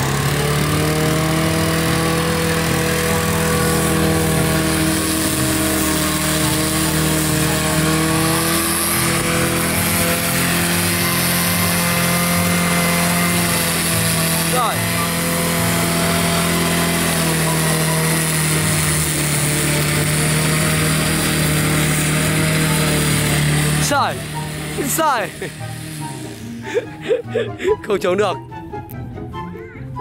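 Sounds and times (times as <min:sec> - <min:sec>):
lawn mower engine running: 0:00.0 - 0:28.4.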